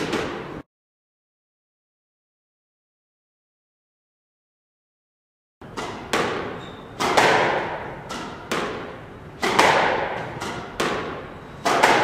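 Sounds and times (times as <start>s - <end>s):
squash ball hits echoing: 0.0s - 0.6s, 5.6s - 12.0s.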